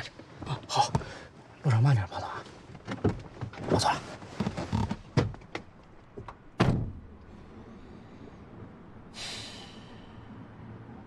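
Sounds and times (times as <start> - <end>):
car door thunk: 6.2 - 7.0.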